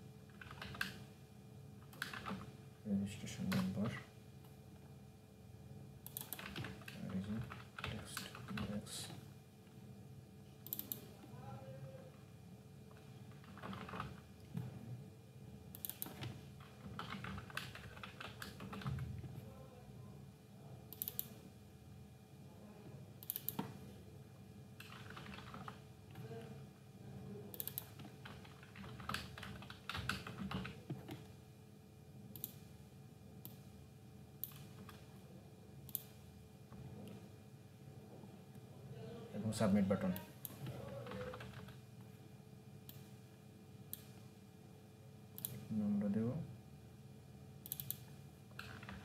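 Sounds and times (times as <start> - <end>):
faint steady hum: 0.0 - 49.0
keyboard typing: 0.3 - 1.0, 1.8 - 2.5, 6.0 - 8.8, 10.6 - 11.1, 12.9 - 14.7, 15.7 - 19.1, 20.9 - 21.4, 23.2 - 23.8, 24.8 - 26.5, 27.5 - 31.3, 34.4 - 35.1, 40.1 - 41.8, 47.6 - 49.0.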